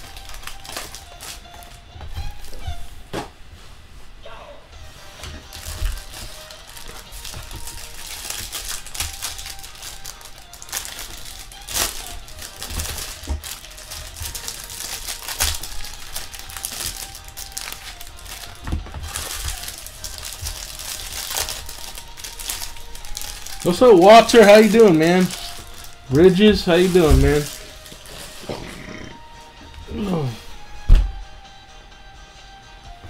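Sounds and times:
foil wrappers crinkling: 0.0 - 2.6, 5.2 - 28.5
background music: 0.0 - 33.0
cards being handled: 5.5 - 28.6.

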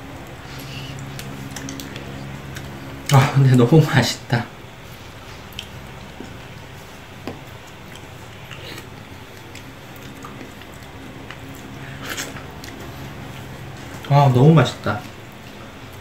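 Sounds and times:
chewing: 0.2 - 3.2, 4.9 - 14.1.

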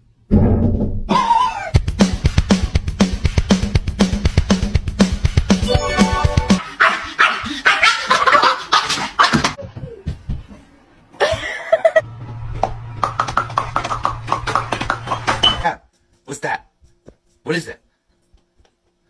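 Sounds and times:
music with steady beat: 1.8 - 6.6
dog barking and yipping: 6.7 - 9.6.

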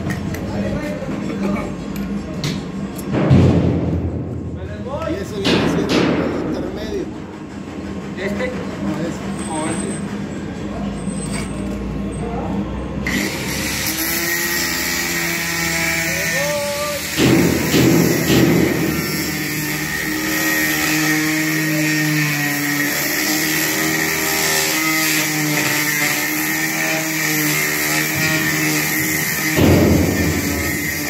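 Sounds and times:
angle grinder motor whine: 13.0 - 17.2, 18.7 - 31.0.

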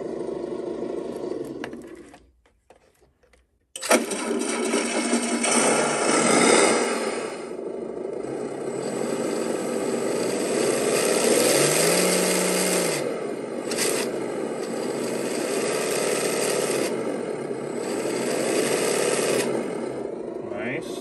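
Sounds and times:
simulated engine sound revving: 4.3 - 21.0.

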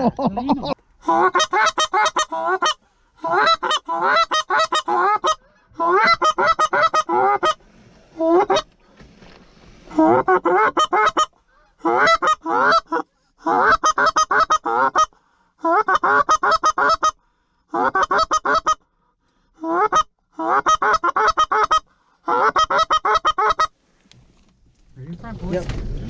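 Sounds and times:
goose call honks and clucks: 0.6 - 7.6, 8.2 - 8.7, 9.9 - 18.9, 19.6 - 23.8.

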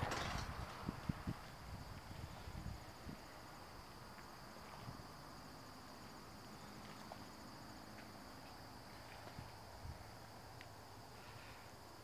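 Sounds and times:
crickets trilling: 0.0 - 12.0
low outdoor rumble: 0.0 - 12.0
small ticks: 10.6 - 10.8.

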